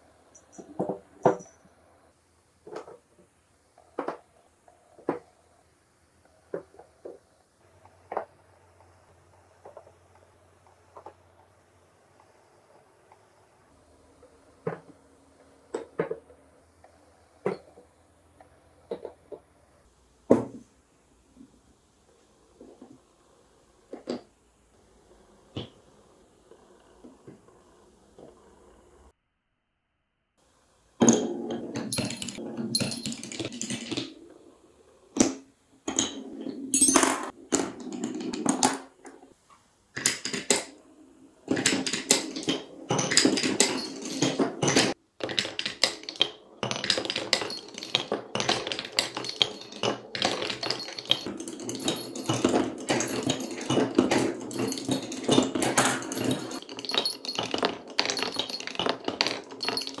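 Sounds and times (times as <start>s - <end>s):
marbles rolling on wooden track: 31.0s - 39.3s, 40.0s - 60.0s
marbles clattering on wooden blocks: 31.1s - 34.2s, 35.2s - 38.9s, 40.0s - 40.8s, 41.5s - 60.0s.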